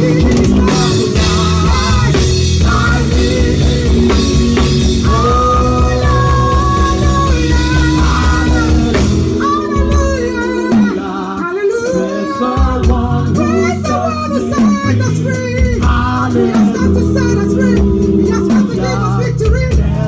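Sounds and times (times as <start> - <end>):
drum and cymbal hits: 0.0 - 20.0
live worship music: 0.0 - 20.0
person singing: 0.0 - 20.0.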